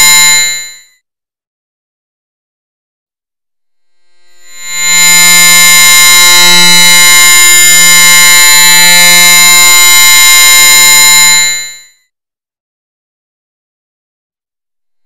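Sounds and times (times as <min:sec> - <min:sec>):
harsh electronic buzzing drone: 0:03.7 - 0:11.6.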